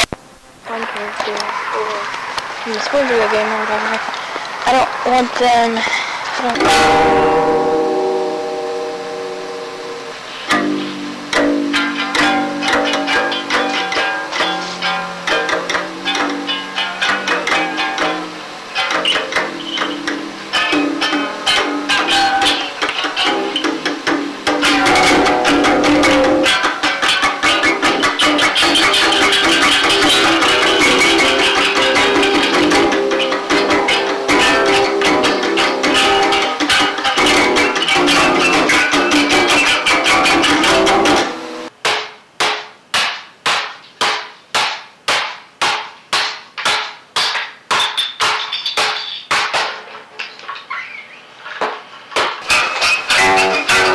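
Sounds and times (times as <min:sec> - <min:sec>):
live band playing: 0:06.6 - 0:41.7.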